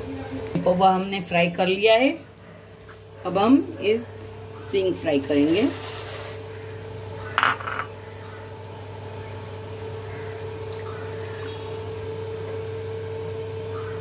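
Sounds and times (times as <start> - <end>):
peanuts sizzling in hot oil: 4.7 - 8.2.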